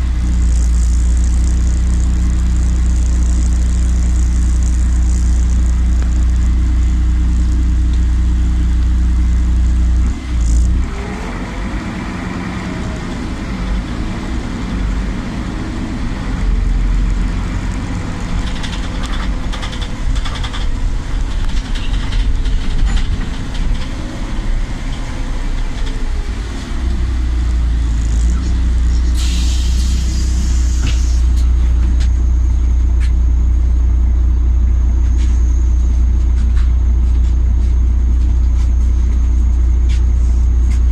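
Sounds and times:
bus diesel engine: 0.0s - 40.9s
compressed air hiss: 29.0s - 31.4s.

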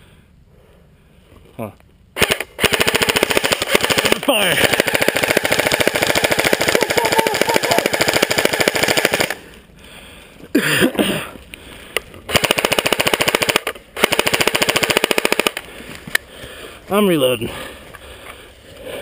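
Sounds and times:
airsoft rifle full-auto bursts: 2.2s - 9.4s, 12.3s - 15.7s.

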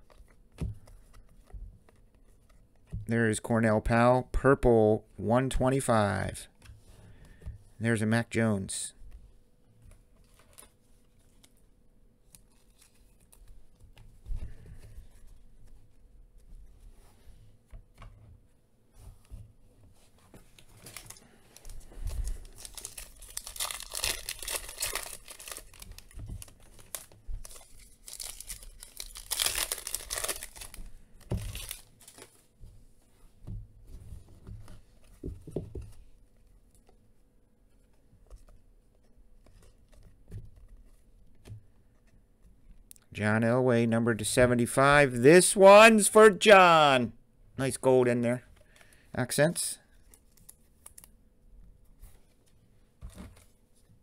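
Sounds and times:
cards rustling: 12.2s - 15.9s, 20.0s - 32.5s
plastic wrapper tearing and crinkling: 20.8s - 32.4s, 50.0s - 51.1s.

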